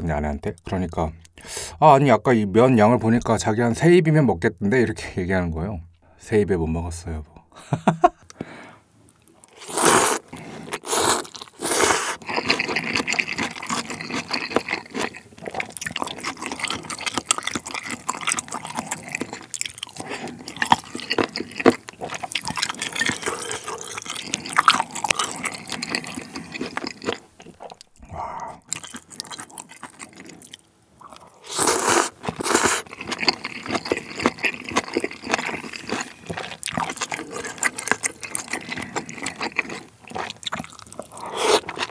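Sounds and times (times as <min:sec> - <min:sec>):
wet chewing: 0:09.4 - 0:41.9
noodle slurping: 0:09.5 - 0:28.8, 0:31.1 - 0:41.9.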